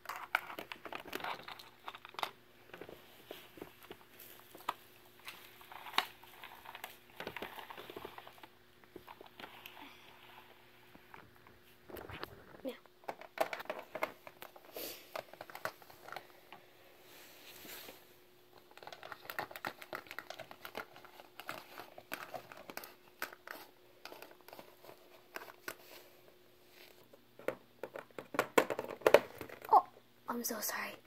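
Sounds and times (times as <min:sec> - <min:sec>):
soft rustling: 0:17.0 - 0:18.2.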